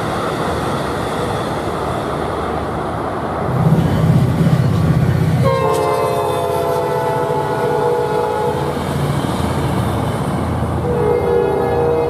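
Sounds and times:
train wheels clacking on rails: 3.5s - 10.8s
train air horn blast: 5.4s - 8.8s, 10.8s - 12.0s.

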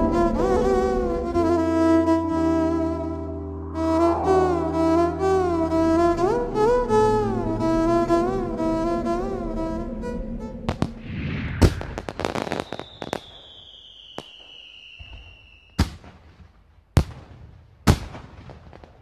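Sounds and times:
firework whistle falling in pitch: 0.0s - 15.8s
fireworks crackling and banging: 10.7s - 19.0s.

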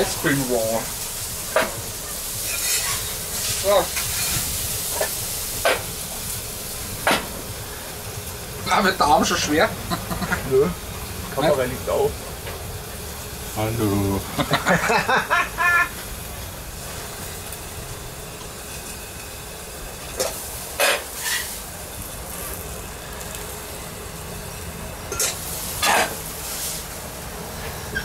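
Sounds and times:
burger patties sizzling on griddle: 0.0s - 28.0s
metal spatula scraping: 2.4s - 4.4s, 20.8s - 21.6s.

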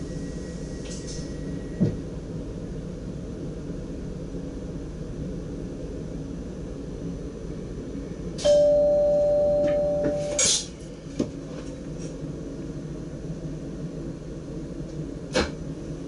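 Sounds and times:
train hum: 0.0s - 16.0s
bell-like signal chime: 8.4s - 10.4s.

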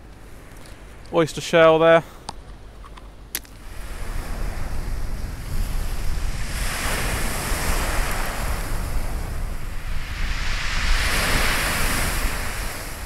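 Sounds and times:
surf breaking on shingle beach: 3.6s - 13.0s
wind rumbling on microphone: 3.6s - 13.0s.

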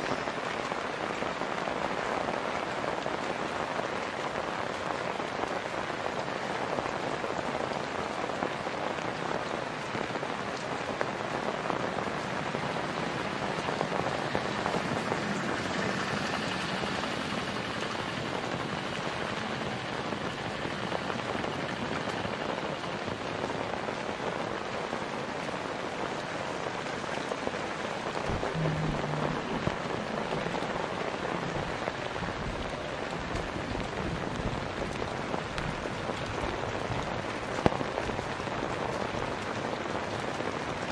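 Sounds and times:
heavy rain falling: 0.0s - 40.9s
low bumps: 28.2s - 33.9s.

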